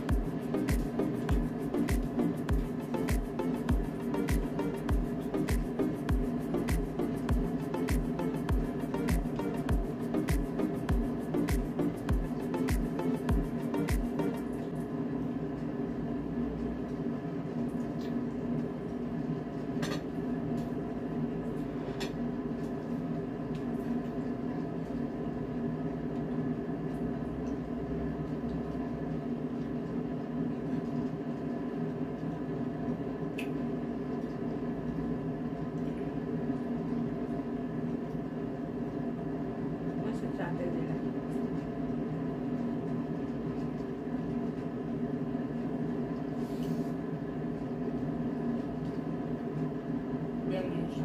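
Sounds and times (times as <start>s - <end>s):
background music: 0.0s - 14.7s
steady machine hum: 0.0s - 51.0s.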